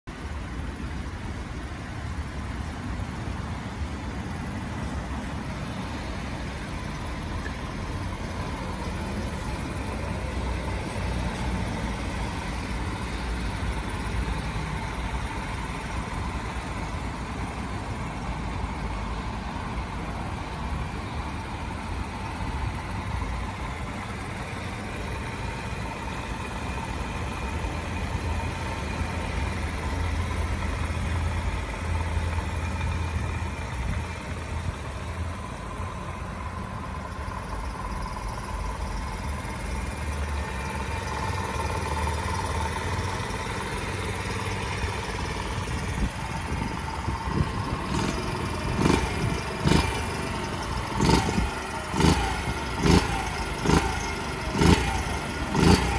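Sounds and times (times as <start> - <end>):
motorbike engine idling: 0.1 - 55.9
engine revving blips: 46.4 - 55.9.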